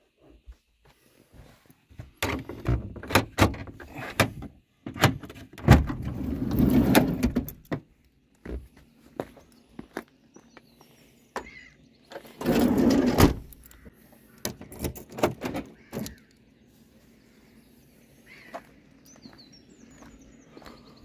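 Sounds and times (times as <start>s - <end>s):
loud door clunk: 2.2s - 7.8s, 12.4s - 13.5s
sliding door rumbling on track: 5.7s - 7.5s, 12.4s - 13.4s.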